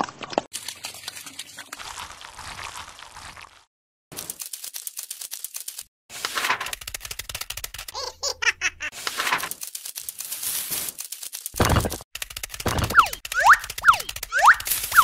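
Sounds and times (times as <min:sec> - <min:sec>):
rapid dry clicking: 0:04.2 - 0:08.0, 0:09.0 - 0:15.0
cartoon giggle: 0:07.9 - 0:09.0.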